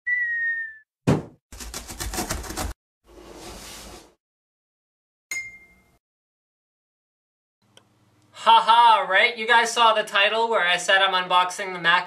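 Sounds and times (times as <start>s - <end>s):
sharp knock: 1.1s - 1.4s
bright ding: 5.3s - 6.0s.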